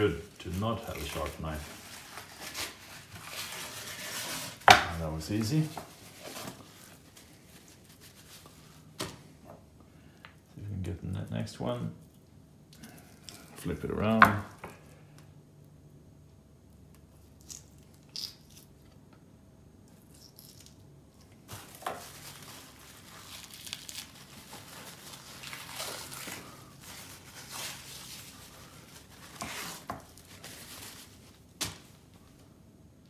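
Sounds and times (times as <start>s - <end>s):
paper towel crinkling: 0.0s - 9.0s, 21.4s - 32.1s.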